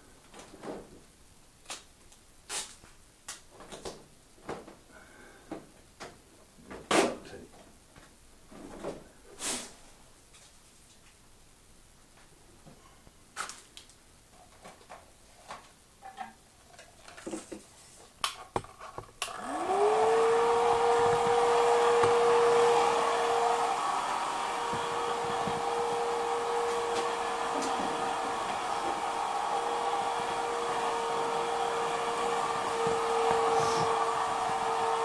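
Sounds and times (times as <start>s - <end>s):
electric blower running: 19.2s - 35.0s.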